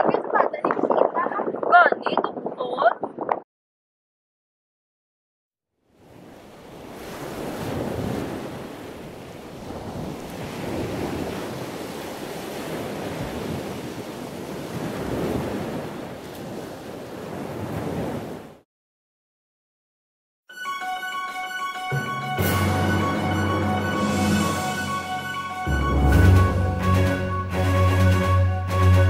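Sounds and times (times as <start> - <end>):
wind rumbling on microphone: 0.0 - 3.4, 6.0 - 18.6
sea surf washing on shore: 6.0 - 18.6.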